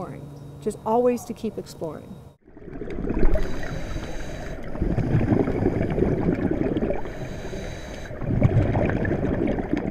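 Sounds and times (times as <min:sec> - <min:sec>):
churning gurgling water: 0:02.4 - 0:09.9.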